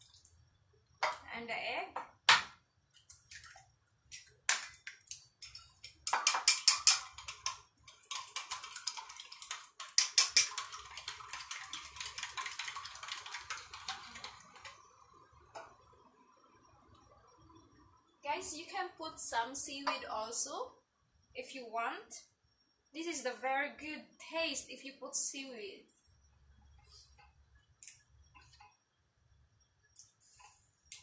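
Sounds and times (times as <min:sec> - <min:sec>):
chopsticks beating egg in metal bowl: 0:05.4 - 0:14.7.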